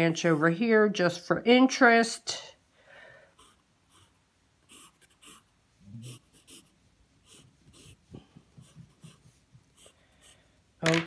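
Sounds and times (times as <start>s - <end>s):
pencil scratching on paper: 3.4s - 10.5s.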